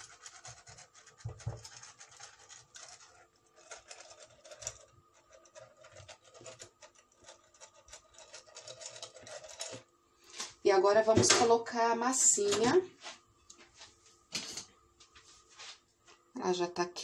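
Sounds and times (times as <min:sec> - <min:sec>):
pastry brush scratching: 0:00.0 - 0:09.8.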